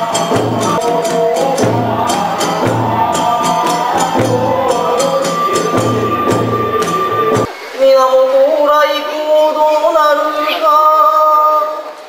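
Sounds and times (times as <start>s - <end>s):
barrel drum beats: 0.0s - 7.5s
hand cymbals clashing: 0.0s - 7.5s
bamboo flute melody: 0.0s - 7.6s.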